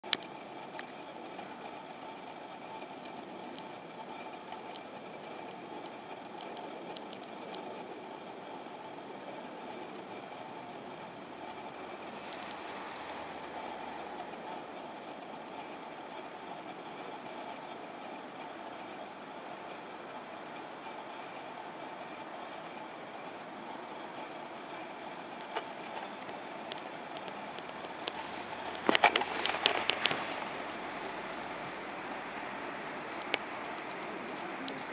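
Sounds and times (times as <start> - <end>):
faint clicks: 0.0 - 10.8, 23.9 - 34.9
electric train rumbling: 0.0 - 34.9.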